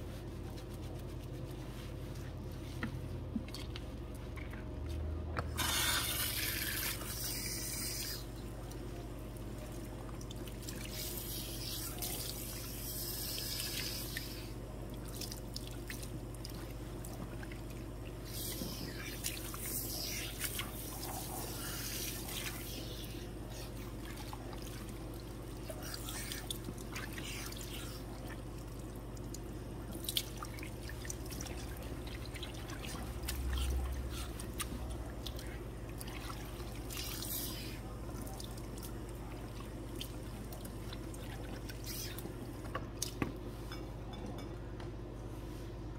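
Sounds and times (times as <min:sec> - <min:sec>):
steady low hum: 0:00.0 - 0:45.9
water spraying and splashing: 0:05.6 - 0:08.2.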